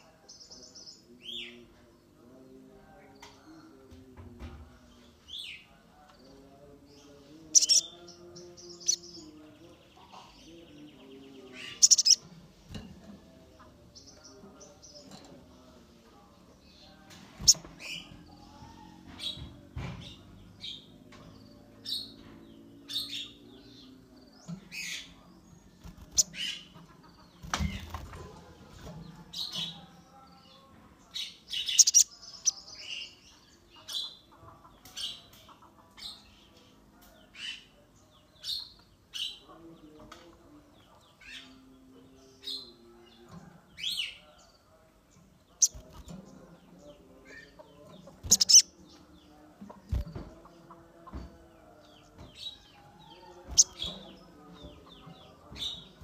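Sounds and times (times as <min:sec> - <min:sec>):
bird chirping: 0:05.0 - 0:12.3, 0:29.3 - 0:34.3, 0:43.8 - 0:50.8, 0:51.4 - 0:56.0
wings fluttering: 0:27.4 - 0:28.3.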